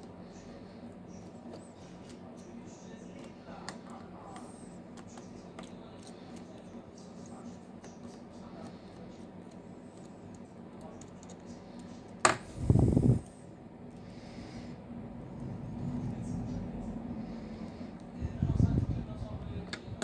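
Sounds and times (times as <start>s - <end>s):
steady low hum: 0.0s - 20.0s
screwdriver ticking and scraping: 3.1s - 12.2s.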